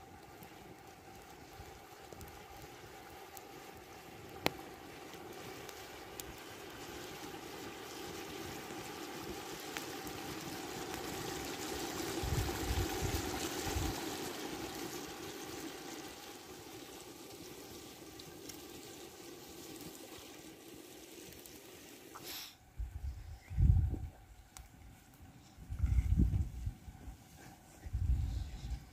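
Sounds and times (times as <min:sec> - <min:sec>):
zucchini sizzling in a pot: 0:01.6 - 0:22.6.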